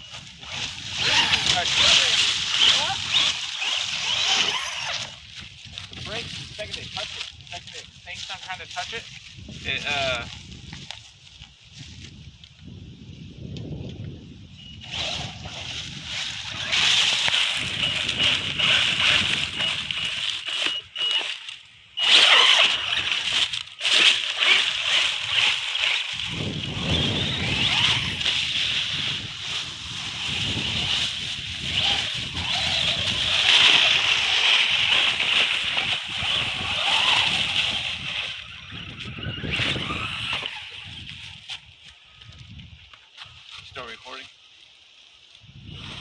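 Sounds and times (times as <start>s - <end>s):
electric motor whining: 0.0s - 6.8s, 14.8s - 41.4s
tyres tearing through dry leaves: 0.0s - 12.0s, 14.8s - 41.9s.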